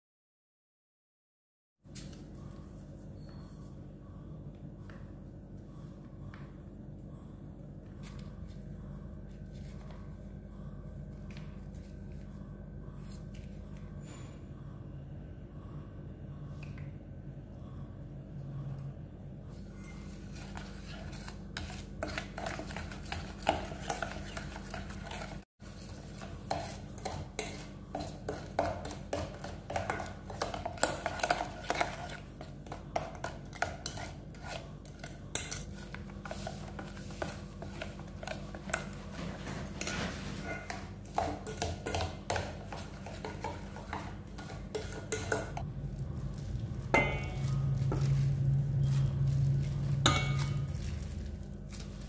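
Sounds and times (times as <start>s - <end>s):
metal spoon scraping a steel bowl: 19.5s - 39.0s, 39.8s - 45.6s, 50.0s - 50.7s
spoon clinking against bowl: 40.6s - 45.6s.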